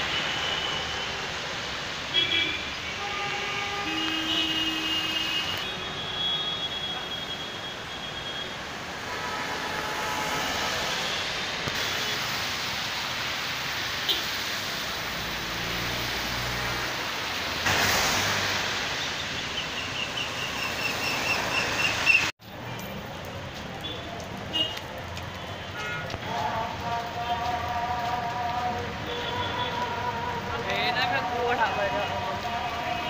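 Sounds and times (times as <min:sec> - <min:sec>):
rain and tyres hissing on wet road: 0:00.0 - 0:33.0
car swishing past: 0:15.2 - 0:19.3.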